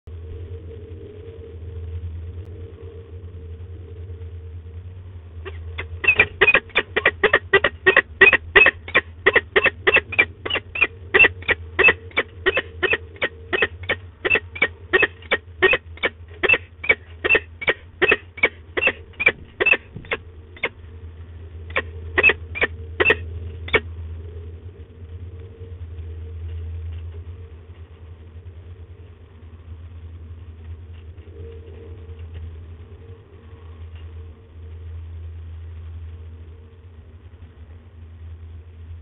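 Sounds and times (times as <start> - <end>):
falcon calling: 5.4 - 20.8, 21.7 - 23.9.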